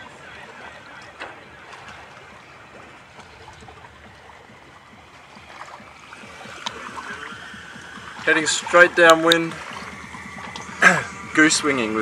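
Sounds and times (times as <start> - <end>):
water swishing along a hull: 0.0 - 12.0.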